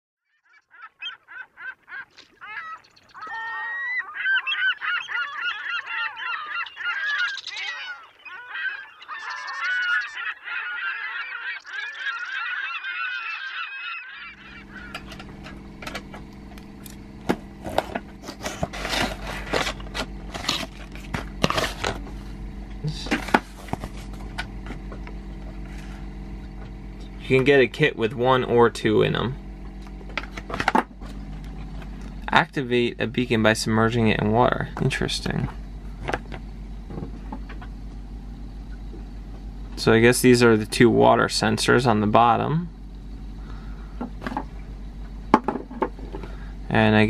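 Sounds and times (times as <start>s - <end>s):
flock of birds calling: 0.3s - 37.6s, 38.6s - 44.9s
steady low hum: 1.0s - 47.0s
box and packaging rustling: 17.3s - 22.2s, 23.0s - 24.4s.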